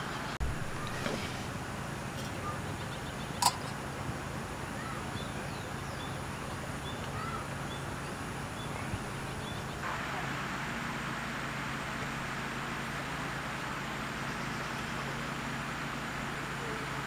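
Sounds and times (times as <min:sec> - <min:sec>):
small birds chirping: 0:00.0 - 0:09.9, 0:13.5 - 0:17.0
low hum: 0:00.0 - 0:17.0
steady hiss: 0:00.0 - 0:17.0.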